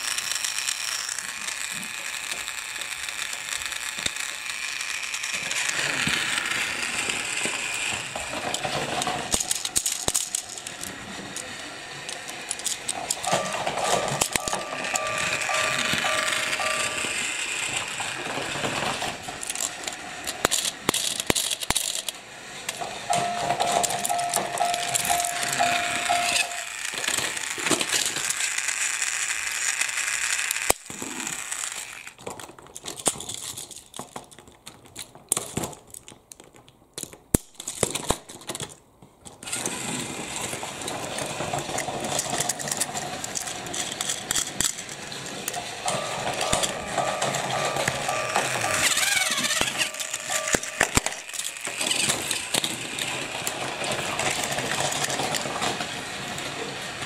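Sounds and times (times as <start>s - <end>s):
plastic toy train cars clattering: 0.0s - 57.0s
steady tone: 13.0s - 17.9s, 22.8s - 26.8s, 45.5s - 51.3s.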